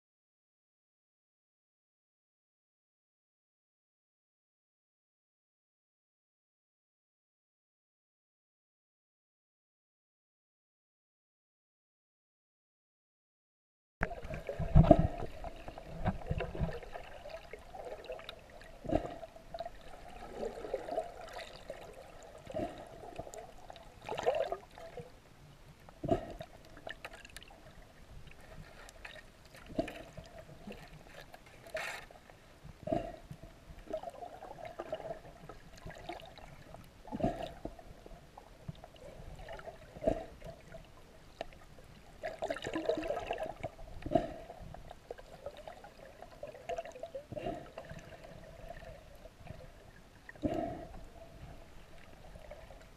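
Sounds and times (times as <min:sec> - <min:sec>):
underwater gurgling and sloshing: 0:14.0 - 0:52.9.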